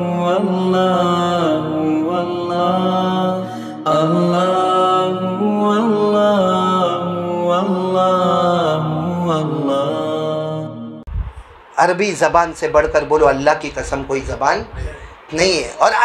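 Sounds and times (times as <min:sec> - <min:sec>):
melodic vocal chanting: 0:00.0 - 0:11.1.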